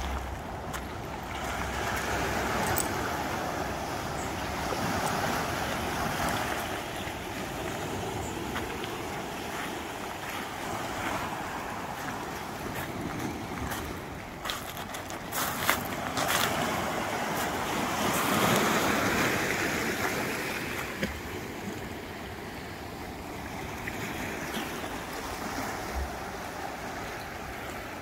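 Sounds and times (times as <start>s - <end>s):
waves washing over pebbly shore: 4.4s - 21.4s.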